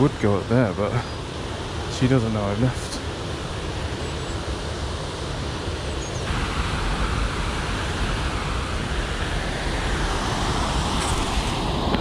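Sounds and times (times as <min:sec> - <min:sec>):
water rushing over weir: 0:00.0 - 0:12.0
wind on microphone: 0:06.2 - 0:12.0.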